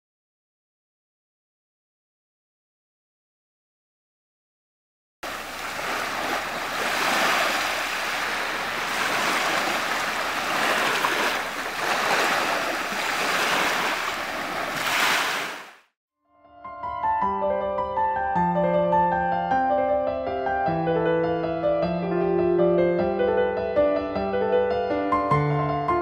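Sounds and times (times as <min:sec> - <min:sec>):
sea waves washing in: 0:05.2 - 0:15.9
piano music: 0:16.3 - 0:26.0.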